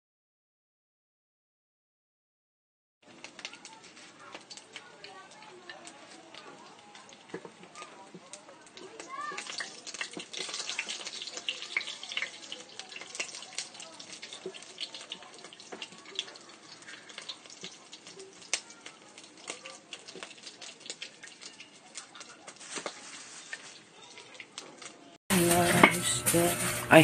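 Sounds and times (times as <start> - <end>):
food frying in hot oil: 3.0 - 26.7.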